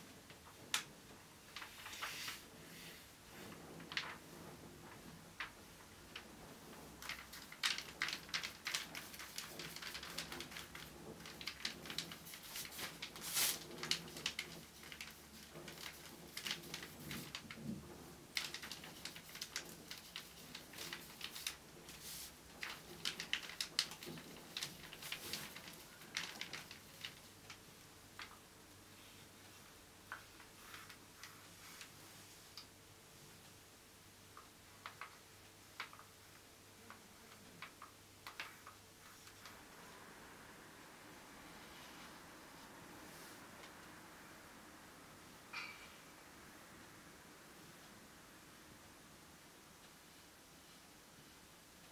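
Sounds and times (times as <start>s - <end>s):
paintbrush strokes on canvas: 1.7s - 4.7s, 12.2s - 13.7s, 21.3s - 22.4s, 41.5s - 43.5s.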